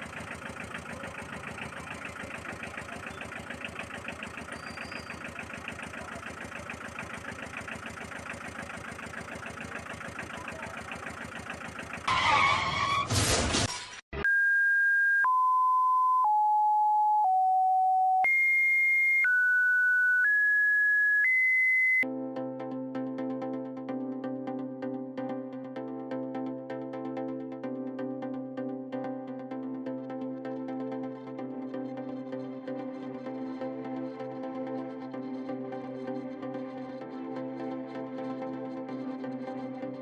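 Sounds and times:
pulsing engine sound effect: 0.0s - 13.2s
electronic beeps: 2.1s - 5.5s, 14.2s - 22.1s
noisy crash: 12.1s - 14.0s.

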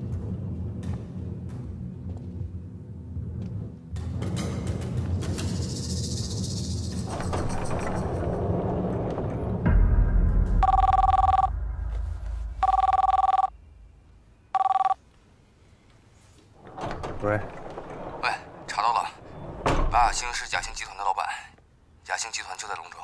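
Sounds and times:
electronic telephone ringing: 10.6s - 11.5s, 12.6s - 13.5s, 14.5s - 15.0s.

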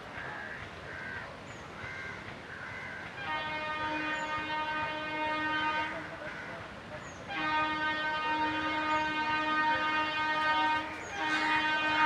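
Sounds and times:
crows cawing: 0.4s - 3.1s, 11.2s - 11.8s
train rumble: 2.2s - 12.0s
locomotive horn blast: 3.2s - 6.2s, 7.2s - 12.0s.

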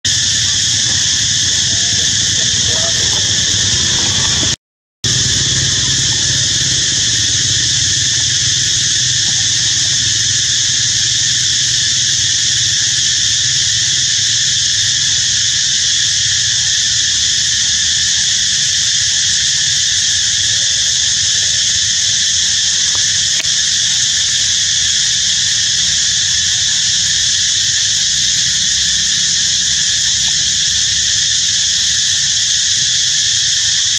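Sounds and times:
low rumble: 0.0s - 11.1s
high-pitched insect chorus: 0.0s - 33.9s.

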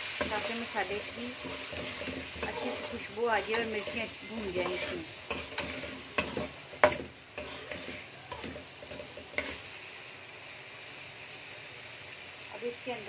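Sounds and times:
frying sizzle: 0.0s - 13.0s
metal ladle scraping a pot: 0.2s - 9.6s.

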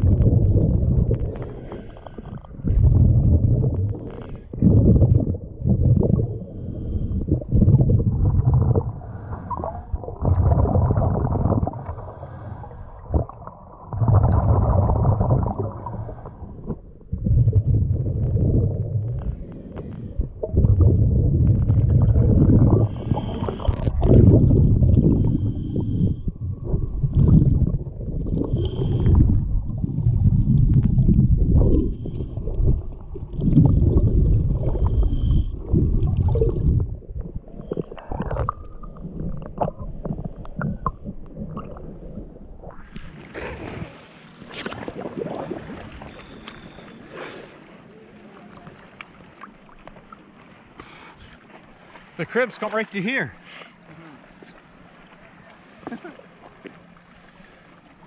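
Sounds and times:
water gurgling: 0.0s - 58.0s
breathing through a snorkel: 1.2s - 3.0s, 3.9s - 5.0s, 6.4s - 7.6s, 8.8s - 10.1s, 11.6s - 13.2s, 15.5s - 16.9s, 19.2s - 20.5s, 22.5s - 26.4s, 28.4s - 29.6s, 31.6s - 32.8s, 34.6s - 36.5s, 47.1s - 47.7s, 50.8s - 51.5s.

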